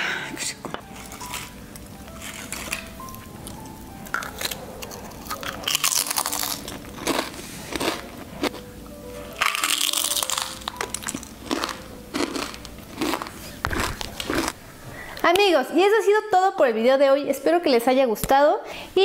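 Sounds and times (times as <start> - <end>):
background music: 0.0 - 18.1
potato chips crunching: 0.9 - 8.7, 9.3 - 14.6.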